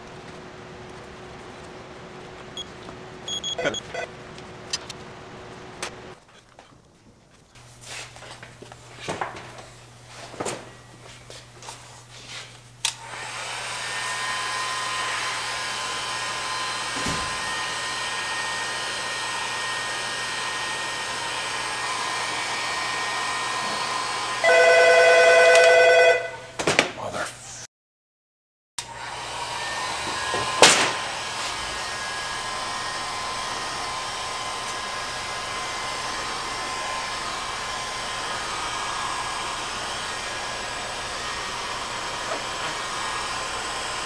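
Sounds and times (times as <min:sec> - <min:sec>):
heat gun blowing: 0:12.4 - 0:24.6, 0:28.8 - 0:44.0.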